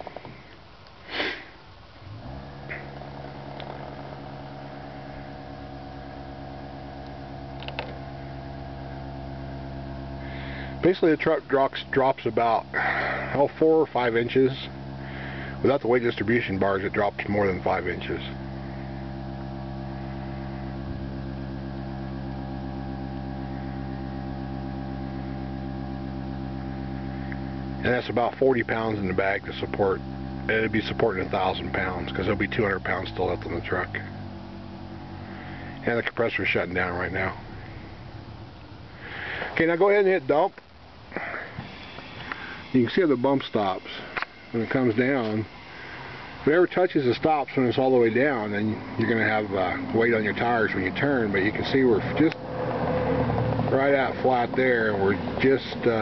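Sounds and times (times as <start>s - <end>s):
air compressor buzzing hum: 0.0s - 56.0s.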